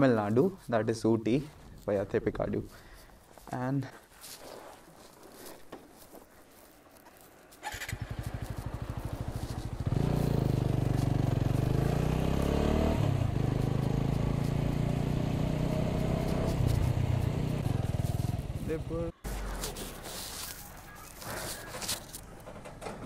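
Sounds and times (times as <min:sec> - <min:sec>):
motorcycle engine accelerating: 0:07.7 - 0:20.4.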